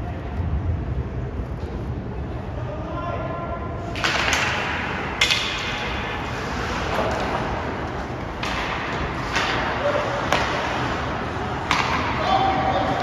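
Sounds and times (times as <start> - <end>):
hockey sticks clattering: 3.9 - 13.0
skates scraping ice: 3.9 - 13.0
stick cracking on puck: 4.0 - 5.9.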